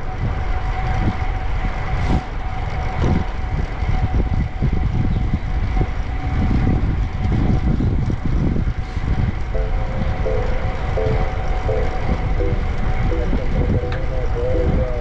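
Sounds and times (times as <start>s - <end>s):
wind on microphone: 0.0s - 15.0s.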